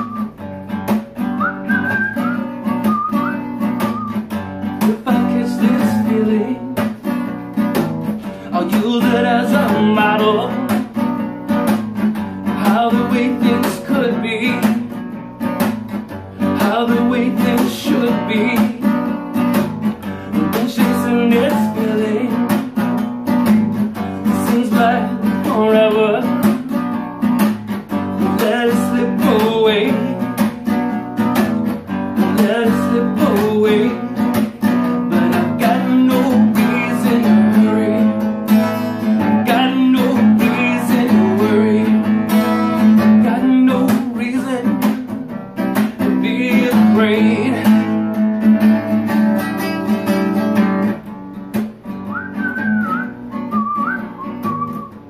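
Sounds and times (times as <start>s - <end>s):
whistled tune: 0.0s - 0.6s, 1.2s - 4.4s, 52.0s - 55.0s
acoustic guitar strumming: 0.0s - 55.0s.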